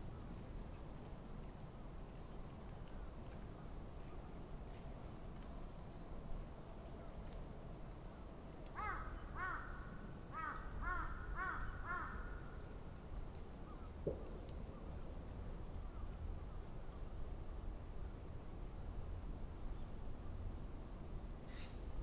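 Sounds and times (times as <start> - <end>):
low outdoor rumble: 0.0 - 22.0
crow cawing: 8.8 - 12.5.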